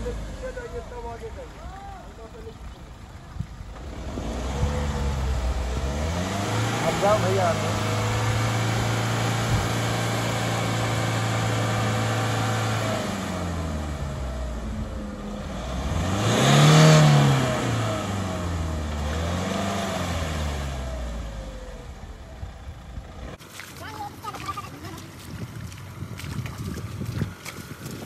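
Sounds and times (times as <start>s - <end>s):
engine revving: 0.0s - 2.6s, 3.6s - 23.4s.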